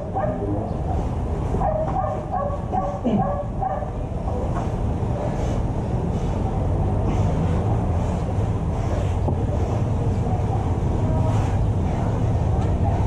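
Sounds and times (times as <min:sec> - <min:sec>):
dog barking: 0:00.0 - 0:00.5, 0:01.6 - 0:03.9
steady low rumble: 0:00.0 - 0:13.0.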